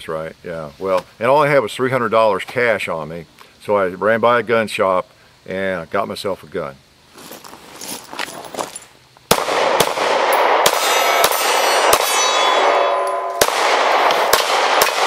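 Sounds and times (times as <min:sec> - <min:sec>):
pistol shots: 0:09.3 - 0:15.0
steel targets ringing: 0:10.2 - 0:15.0.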